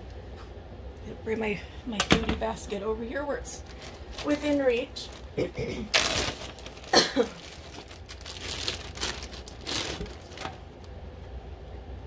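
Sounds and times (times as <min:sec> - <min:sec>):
plastic packaging crinkling: 0:03.6 - 0:11.0.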